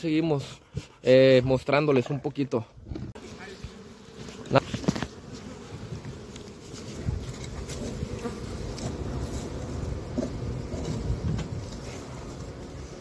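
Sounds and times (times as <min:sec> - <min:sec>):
bees buzzing: 0:03.2 - 0:13.0.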